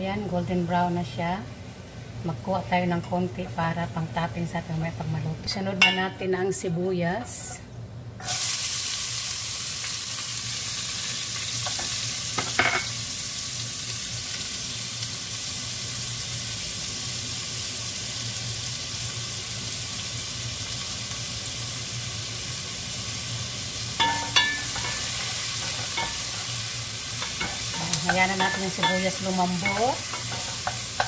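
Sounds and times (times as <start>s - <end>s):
onion sizzling in hot oil: 8.2s - 31.0s.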